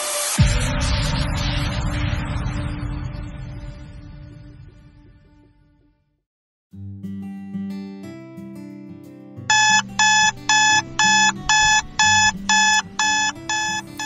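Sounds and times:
electronic alarm beeping: 9.5s - 14.0s
soft background music: 9.5s - 14.0s.

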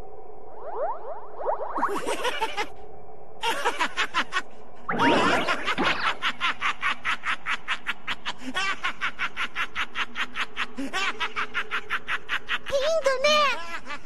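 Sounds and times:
sweeping sound effect: 4.9s - 6.4s.

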